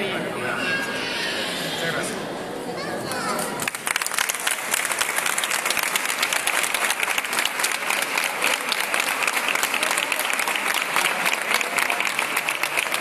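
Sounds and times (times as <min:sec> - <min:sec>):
crowd applauding: 0:03.6 - 0:13.0.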